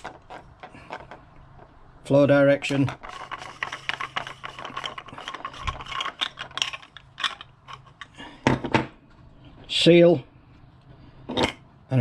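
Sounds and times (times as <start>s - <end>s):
plastic threads clicking and scraping: 0.0s - 1.8s, 2.6s - 8.2s.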